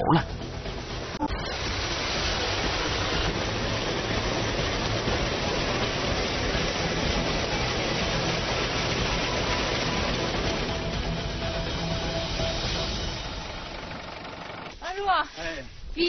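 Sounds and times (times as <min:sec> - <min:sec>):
low engine hum: 0:00.0 - 0:15.1.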